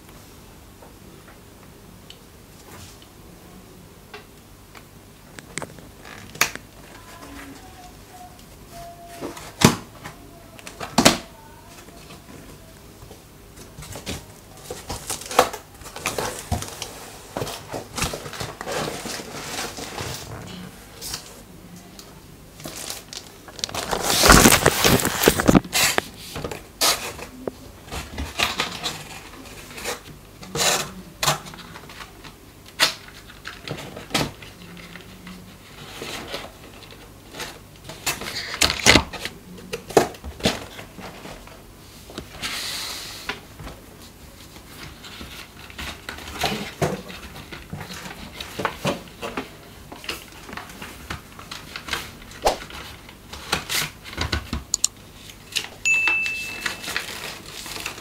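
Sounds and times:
cardboard scraping and rubbing: 0:16.0 - 0:21.3, 0:23.6 - 0:27.3.

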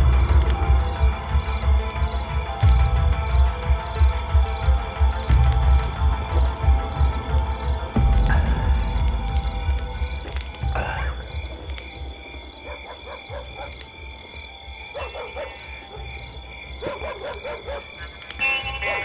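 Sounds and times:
frogs croaking: 0:00.0 - 0:19.0
insects chirping: 0:00.0 - 0:19.0
low rumble: 0:05.3 - 0:11.6.

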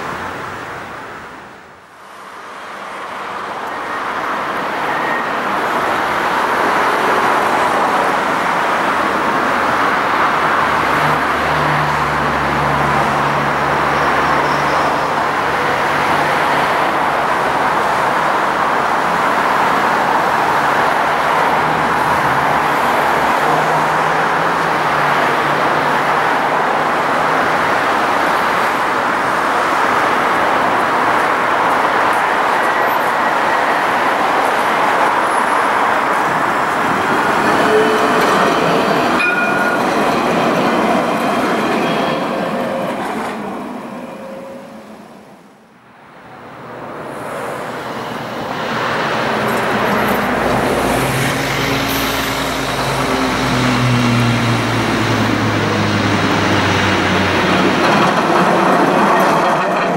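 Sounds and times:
road traffic noise: 0:00.0 - 0:59.9
tram low hum: 0:36.1 - 0:59.9.

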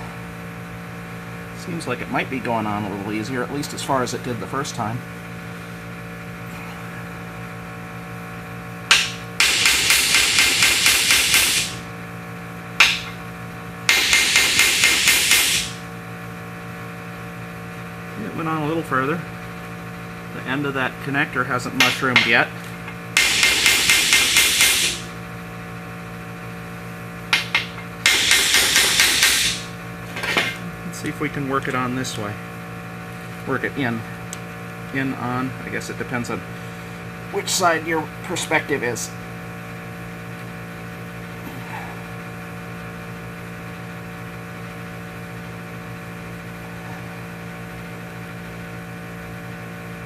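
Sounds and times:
steady low hum: 0:00.0 - 0:50.0
metal connector knocking on workbench: 0:27.4 - 0:27.8.

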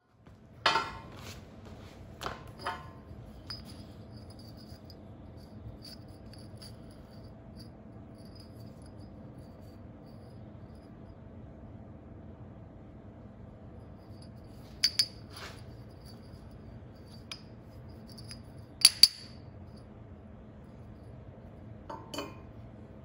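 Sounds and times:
steady low hum: 0:00.0 - 0:23.0
steel tubes clanking on steel plate: 0:02.6 - 0:03.6.

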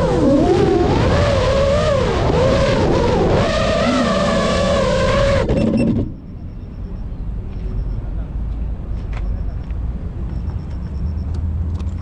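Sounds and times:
drone motors whining: 0:00.0 - 0:07.1.

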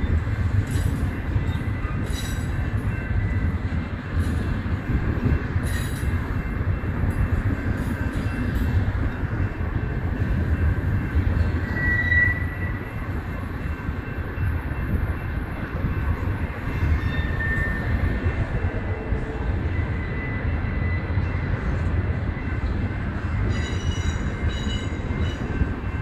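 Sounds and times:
freight train wheels rumbling: 0:00.0 - 0:26.0
high wheel squeal: 0:11.6 - 0:12.9, 0:16.7 - 0:18.0.

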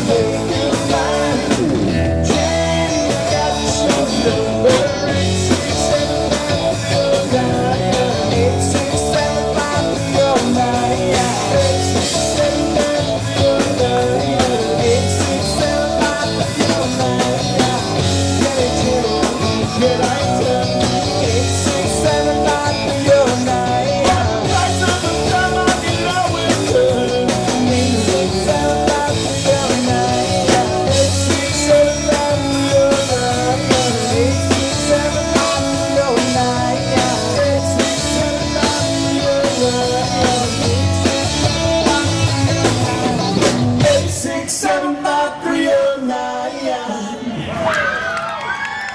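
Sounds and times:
person singing: 0:00.0 - 0:43.1, 0:43.8 - 0:47.6
drum kit: 0:00.0 - 0:45.2
electric guitar: 0:00.0 - 0:45.4
bass guitar: 0:00.0 - 0:46.5.

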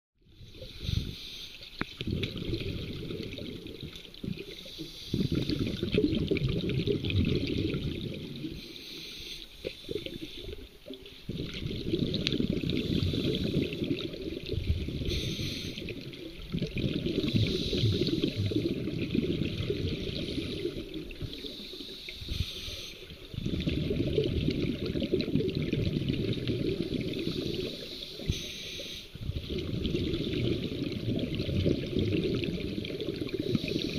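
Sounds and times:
rush of bubbles: 0:00.4 - 0:08.9, 0:09.6 - 0:22.4, 0:23.1 - 0:28.4, 0:29.2 - 0:33.9
regulator hiss: 0:08.6 - 0:10.6, 0:15.1 - 0:15.9, 0:21.3 - 0:23.1, 0:27.2 - 0:29.2.

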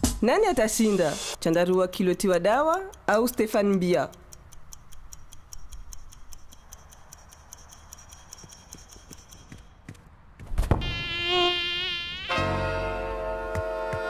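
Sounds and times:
rapid ticking: 0:01.4 - 0:10.0
mosquito buzz: 0:10.7 - 0:14.0.

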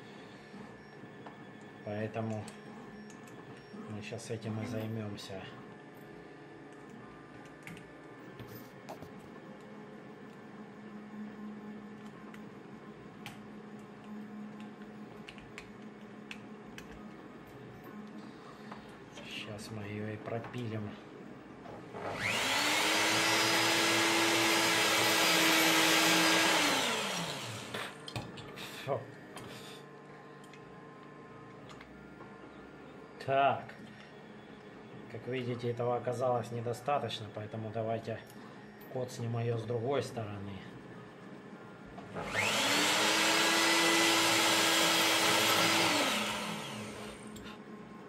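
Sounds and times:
rotary tool whining: 0:21.9 - 0:28.0, 0:42.1 - 0:47.5.

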